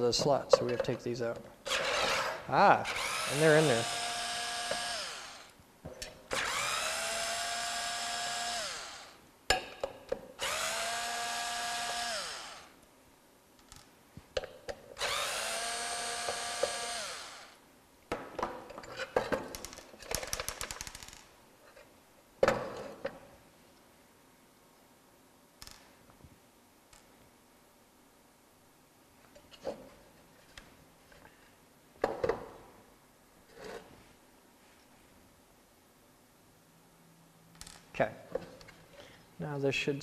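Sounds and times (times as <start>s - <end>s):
electric screwdriver motor whine: 2.9s - 5.6s, 6.4s - 9.2s, 10.4s - 12.7s, 15.0s - 17.6s.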